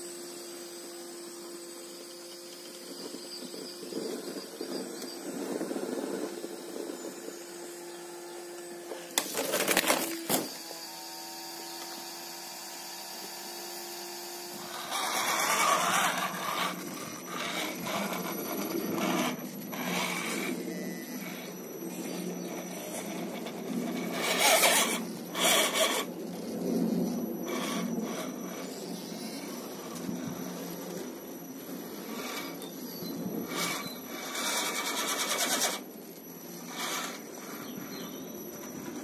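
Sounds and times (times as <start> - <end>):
electric motors and gears whining: 0.0 - 39.0
tyres grinding on stone: 14.5 - 26.1, 31.7 - 35.9.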